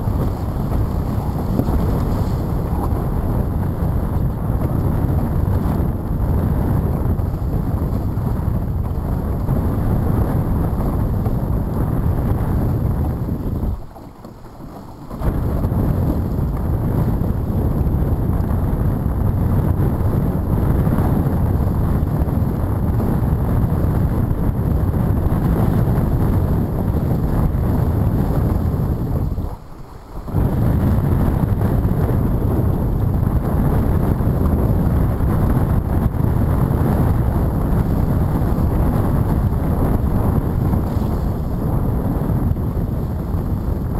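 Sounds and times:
water rushing and spraying off hull: 0:00.0 - 0:43.9
wind buffeting microphone: 0:00.0 - 0:43.9.

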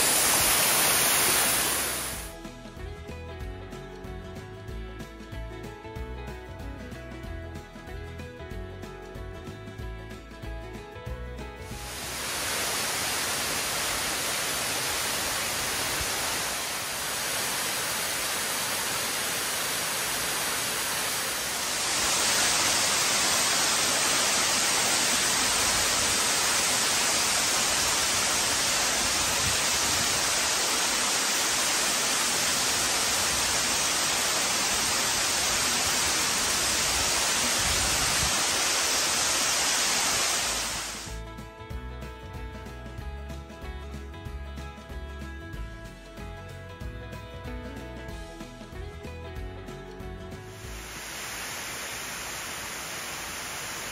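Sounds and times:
waterfall rushing: 0:00.0 - 0:02.3, 0:11.7 - 0:41.1, 0:50.6 - 0:53.9.

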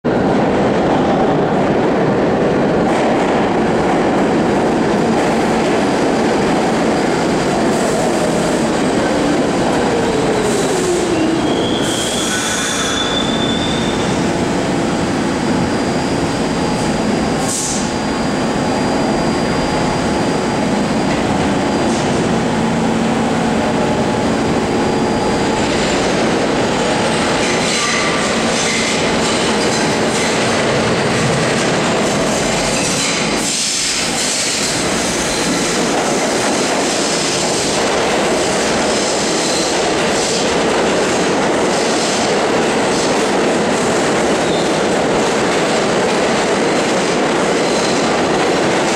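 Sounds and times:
subway train rumbling: 0:00.0 - 0:48.9
high wheel squeal: 0:10.5 - 0:14.2.

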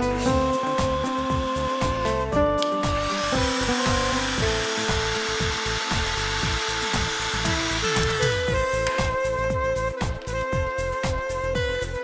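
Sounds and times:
background music: 0:00.0 - 0:12.0
heat gun blowing hiss: 0:02.9 - 0:08.7.

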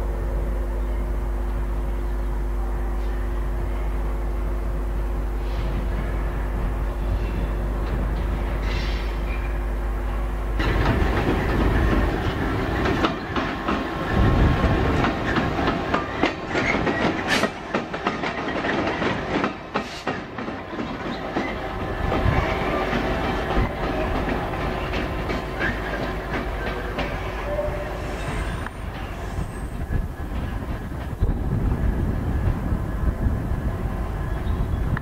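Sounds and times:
diesel locomotive engine: 0:00.0 - 0:35.0
train wheels clattering over rail joints: 0:10.6 - 0:31.5.

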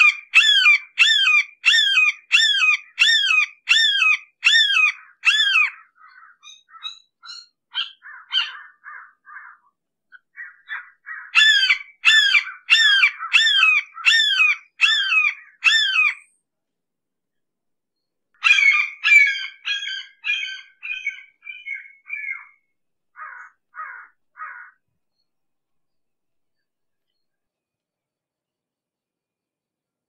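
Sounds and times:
hawk calling harshly: 0:00.0 - 0:09.6, 0:10.4 - 0:16.2.

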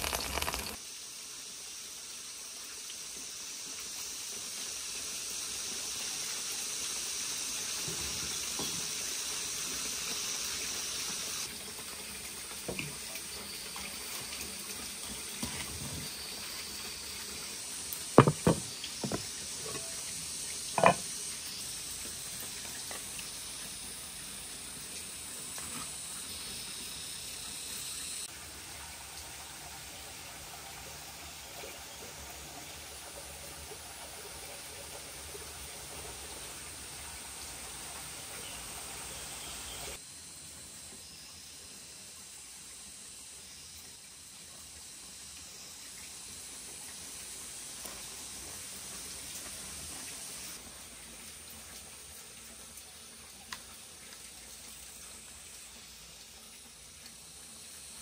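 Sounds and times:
steady hiss: 0:00.0 - 0:58.0
bowl knocking on wooden board: 0:18.2 - 0:19.8, 0:20.8 - 0:21.0.

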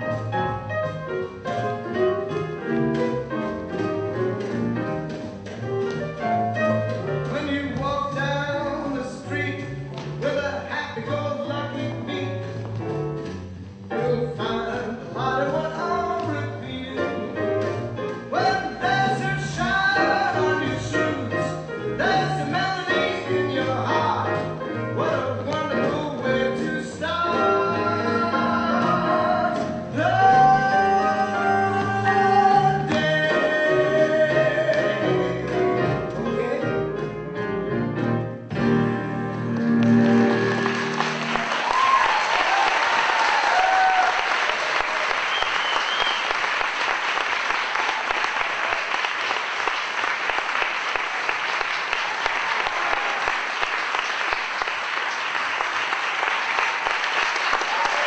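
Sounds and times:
show tune music: 0:00.0 - 0:42.6
audience applauding: 0:39.8 - 0:58.0
whistles and whoops: 0:41.5 - 0:46.5.

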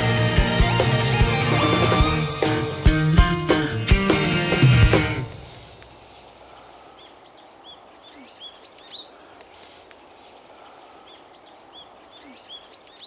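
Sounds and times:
outdoor background noise: 0:04.3 - 0:13.0
small birds chirping: 0:04.4 - 0:13.0.

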